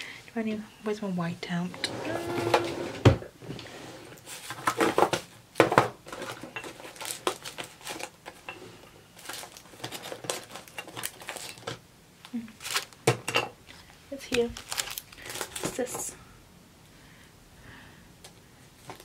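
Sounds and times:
rummaging through a drawer: 1.8s - 11.8s.

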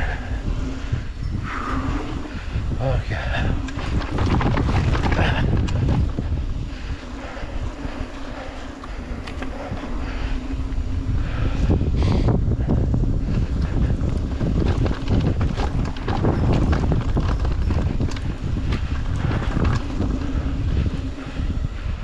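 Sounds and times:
wind buffeting microphone: 0.0s - 22.0s
tyres rumbling on dirt: 2.8s - 6.6s, 13.4s - 21.2s
bike clattering over rocks: 3.7s - 6.3s, 14.1s - 20.2s.

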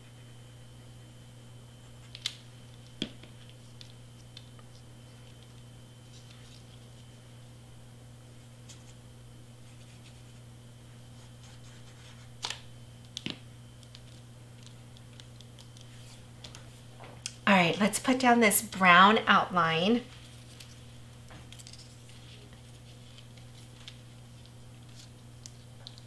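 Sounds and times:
faint steady hum: 0.0s - 26.0s
faint paper scratching: 9.6s - 10.5s, 11.1s - 12.4s, 14.0s - 16.8s.

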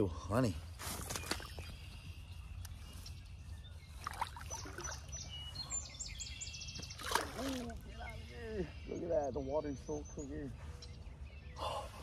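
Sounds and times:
shallow water sloshing: 6.8s - 7.9s
small splash: 6.9s - 7.8s.

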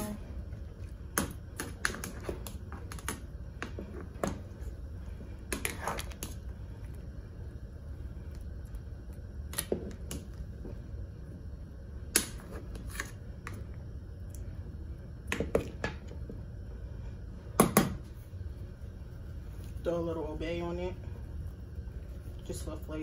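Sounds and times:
steady low rumble: 0.0s - 23.0s.

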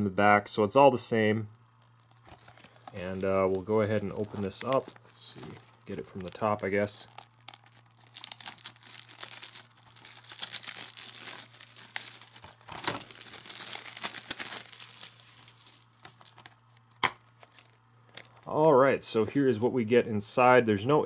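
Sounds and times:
plastic shrink wrap crinkling: 1.8s - 18.5s.

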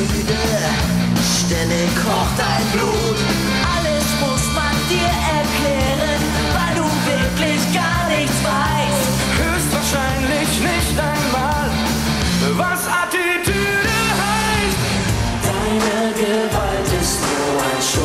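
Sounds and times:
men singing together: 0.0s - 3.4s, 15.4s - 18.0s
rock band playing: 0.0s - 18.0s.

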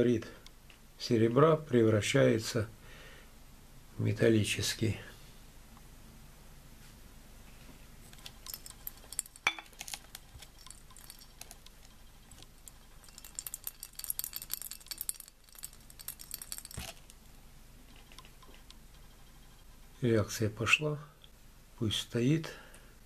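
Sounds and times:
glassware clinking: 8.2s - 17.2s.

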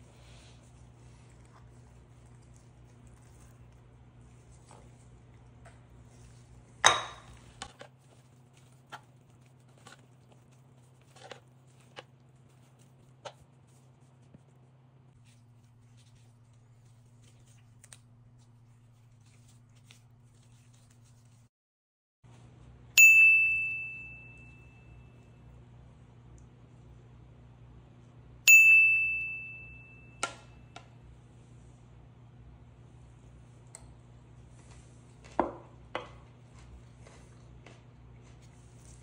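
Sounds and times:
low steady hum: 0.0s - 21.5s, 22.3s - 39.0s
spatula clicking and scraping: 0.2s - 21.4s.

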